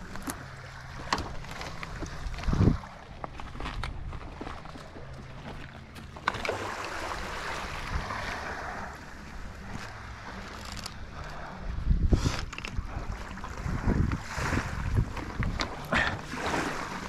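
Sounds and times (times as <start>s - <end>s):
wind buffeting microphone: 0.0s - 6.0s, 6.6s - 17.0s
small waves washing on beach: 6.3s - 11.7s, 12.4s - 17.0s.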